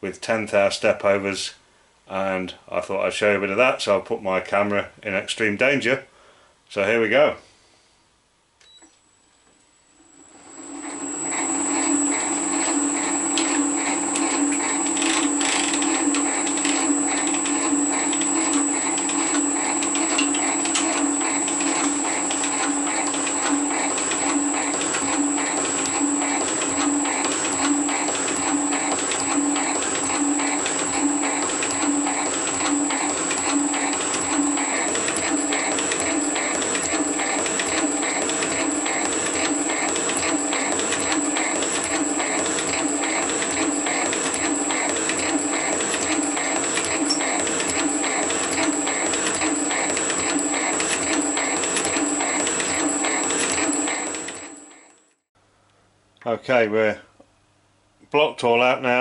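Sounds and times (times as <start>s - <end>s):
metal shaper humming and whining: 10.5s - 54.9s
ram stroke beat: 11.2s - 54.6s.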